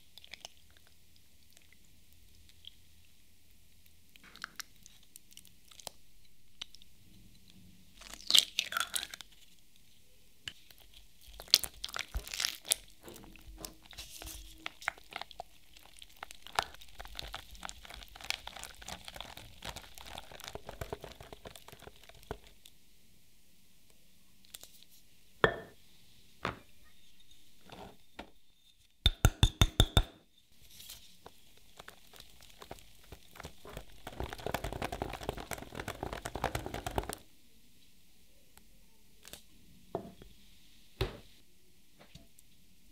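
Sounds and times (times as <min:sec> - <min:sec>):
whisk stirring thick batter: 0:17.2 - 0:22.5, 0:31.3 - 0:37.2.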